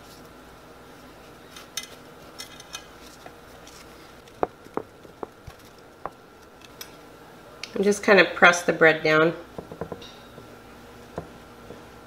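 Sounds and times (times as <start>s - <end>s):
bread tapping ceramic dish: 9.6s - 10.5s.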